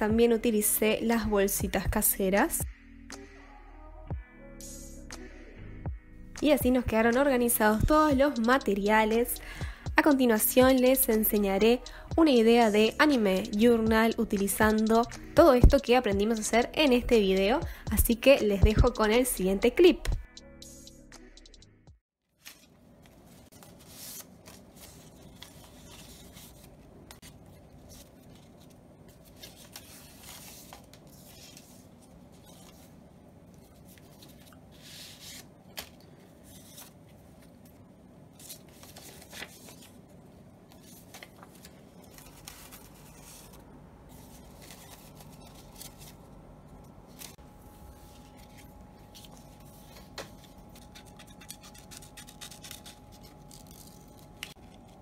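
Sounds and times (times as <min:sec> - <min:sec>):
paper rustling and sliding: 0:22.4 - 0:33.0, 0:33.6 - 0:40.0, 0:40.7 - 0:46.3
scissors cutting paper: 0:44.2 - 0:46.2, 0:49.2 - 0:55.0
sharp paper snap: 0:50.2 - 0:54.9.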